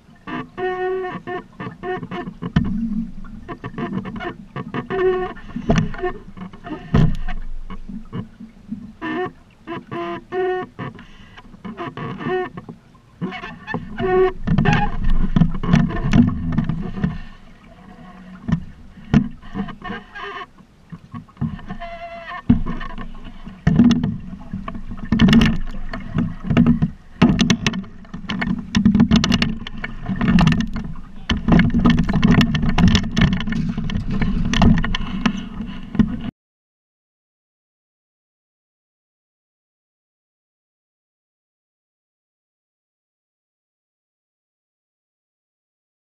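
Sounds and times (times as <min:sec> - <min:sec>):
wind and water rumbling: 0:00.0 - 0:36.3
boat fittings knocking: 0:03.4 - 0:08.4, 0:18.3 - 0:20.1, 0:22.4 - 0:36.3.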